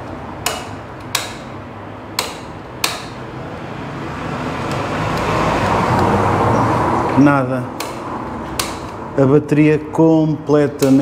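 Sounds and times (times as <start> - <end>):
motorcycle starter switch clicks: 0.4 - 1.5, 2.2 - 3.2.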